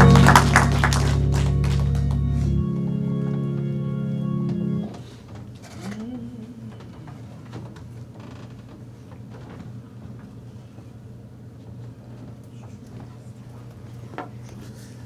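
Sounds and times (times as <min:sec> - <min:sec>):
low hum: 0:00.0 - 0:05.0.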